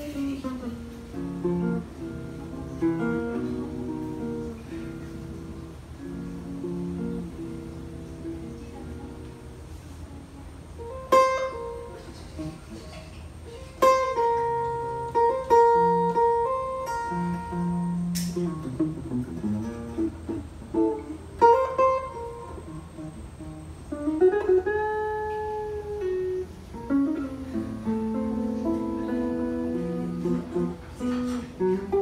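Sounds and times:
solo guitar playing: 0:00.0 - 0:32.0.

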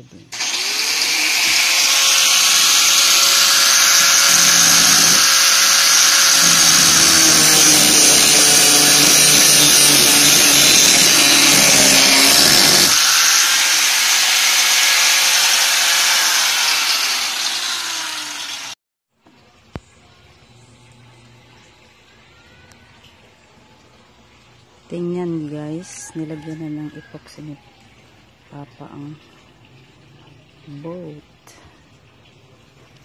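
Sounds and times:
angle grinder grinding plastic: 0:00.3 - 0:18.8.

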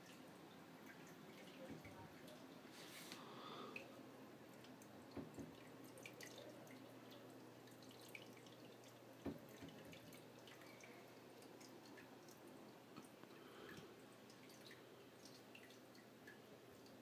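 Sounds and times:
water dripping and trickling: 0:00.0 - 0:17.0.

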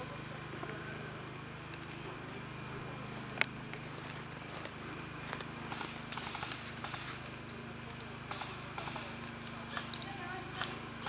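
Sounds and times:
footsteps on dry leaves: 0:03.8 - 0:06.0.

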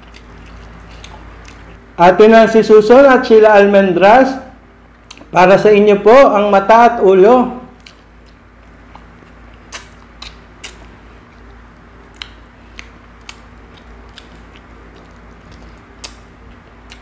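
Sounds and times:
faint low hum: 0:00.0 - 0:17.0
wet mouth clicks and smacks: 0:07.8 - 0:11.0, 0:12.1 - 0:17.0.

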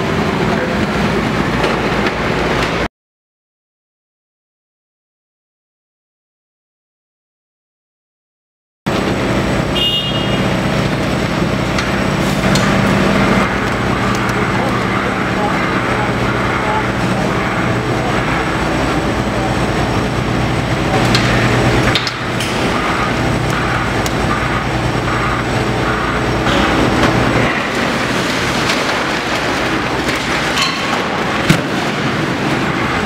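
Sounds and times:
excavator diesel engine running: 0:08.9 - 0:33.0.

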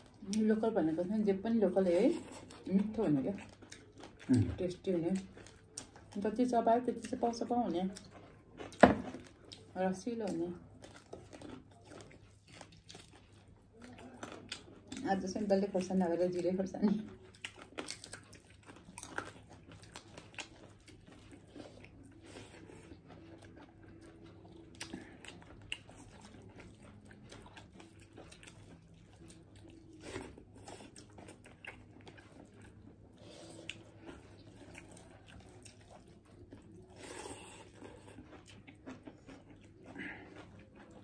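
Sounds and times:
people chewing and crunching: 0:00.0 - 0:41.0.

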